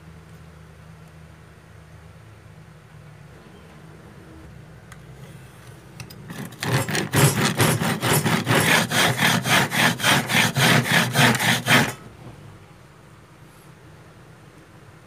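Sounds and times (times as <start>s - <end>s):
hand saw cutting plywood: 6.3s - 12.0s.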